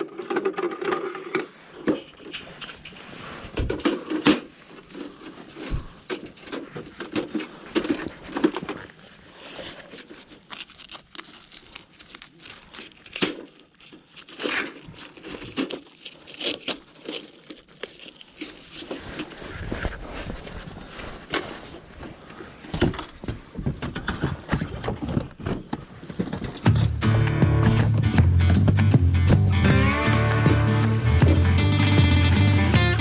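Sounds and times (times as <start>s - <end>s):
camp gear clicks and knocks: 0.0s - 9.0s, 22.6s - 33.0s
crinkling: 0.0s - 33.0s.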